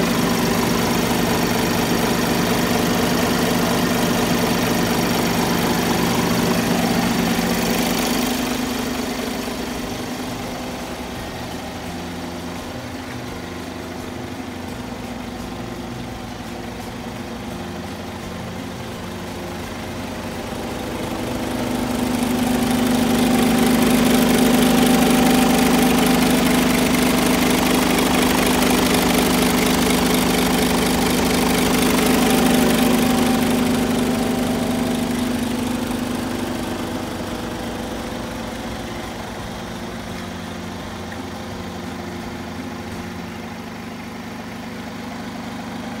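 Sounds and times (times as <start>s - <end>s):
diesel truck engine idling: 0.0s - 46.0s.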